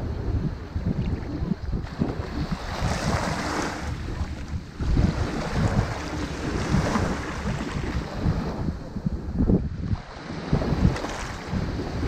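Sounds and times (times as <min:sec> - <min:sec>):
wind buffeting microphone: 0:00.0 - 0:12.0
waves washing up shingle: 0:01.9 - 0:08.5.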